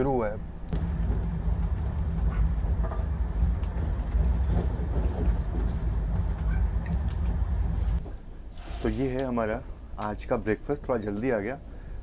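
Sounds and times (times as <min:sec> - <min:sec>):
train rumble inside coach: 0:00.7 - 0:08.0.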